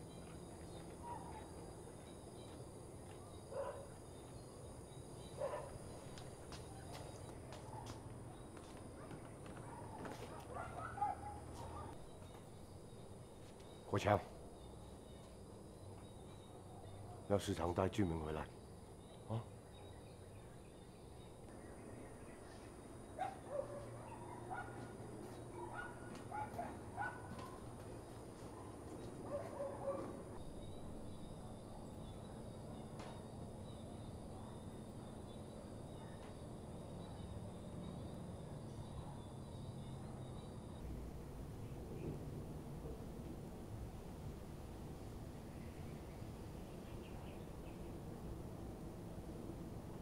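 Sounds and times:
bird calls: 0:00.0 - 0:34.6
dog barking and yipping: 0:01.0 - 0:01.5, 0:03.5 - 0:04.0, 0:05.4 - 0:05.8, 0:09.0 - 0:12.0, 0:23.2 - 0:27.6, 0:28.5 - 0:30.2.

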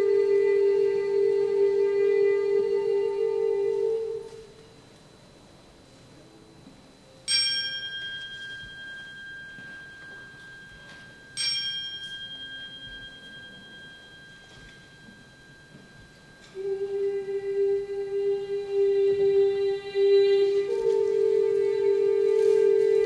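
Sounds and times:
crotale ringing: 0:06.9 - 0:23.0
steady held note: 0:07.1 - 0:23.0.

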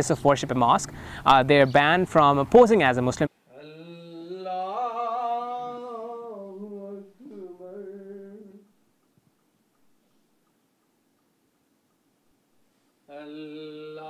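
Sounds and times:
man chanting prayer: 0:03.5 - 0:08.6, 0:13.1 - 0:14.0.

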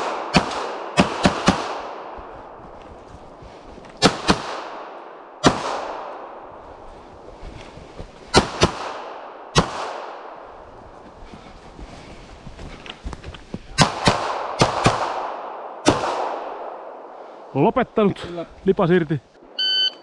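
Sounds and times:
rifle shots with long echo: 0:00.0 - 0:02.6, 0:04.0 - 0:06.6, 0:08.3 - 0:10.6, 0:13.8 - 0:17.2.

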